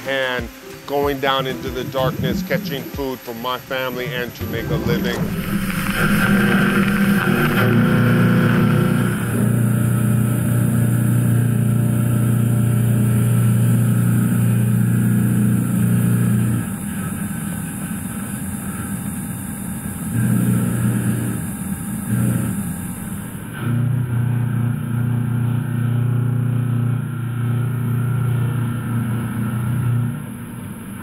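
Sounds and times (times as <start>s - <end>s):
coolant spray hiss: 0.0s - 23.9s
milling machine cutting hum: 0.0s - 31.0s.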